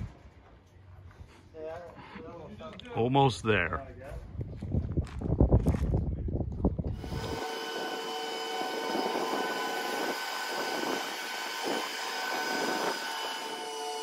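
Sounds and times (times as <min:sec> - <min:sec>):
hydraulic lift whine: 0:06.9 - 0:14.0.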